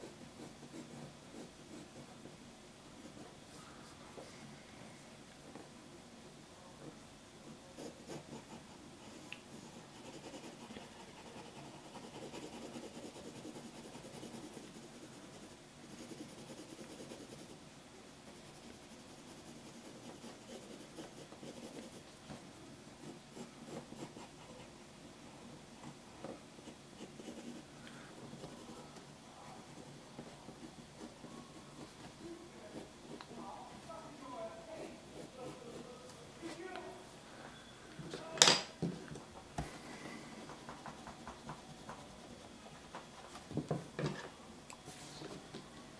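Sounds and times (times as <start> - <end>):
pencil scratching on paper: 0.0 - 2.1, 7.4 - 17.6, 18.2 - 22.0, 23.0 - 24.7, 26.6 - 27.6, 28.4 - 29.0, 29.7 - 33.3, 35.1 - 35.9.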